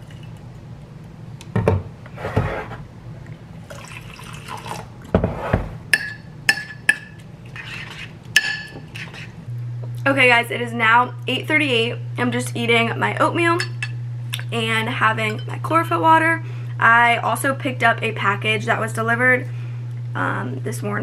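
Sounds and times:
liquid pouring into a bowl: 3.6 - 4.9.

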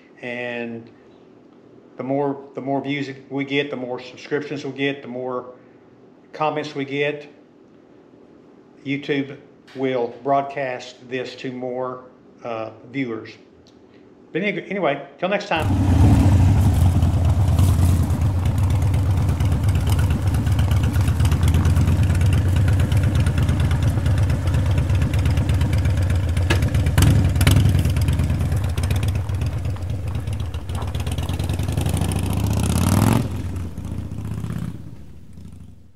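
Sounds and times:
motorcycle engine running: 15.6 - 35.9.

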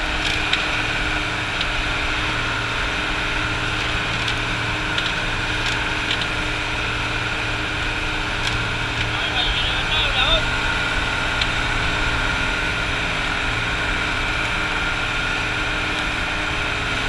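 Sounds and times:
boat engine drone: 0.0 - 17.0.

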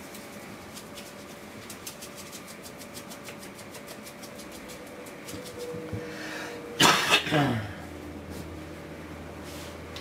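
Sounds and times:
faint steady hum: 0.0 - 10.0
puppy scratching: 0.1 - 5.9.

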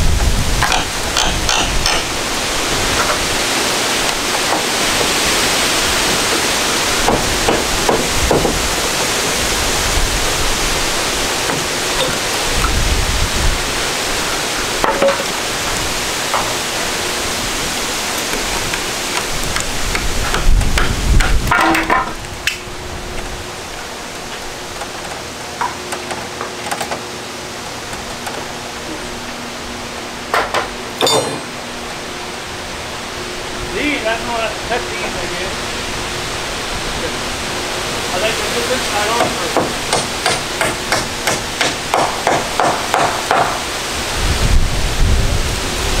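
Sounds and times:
wind gusting over microphone: 0.0 - 24.8, 31.6 - 39.9, 43.6 - 46.0
knocks and clatter on wooden roof: 6.0 - 9.1.

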